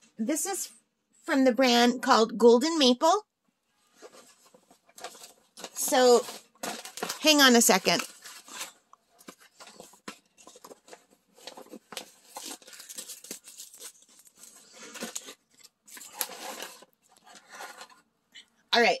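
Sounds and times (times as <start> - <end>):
canvas rustling and crinkling: 3.8 - 17.0.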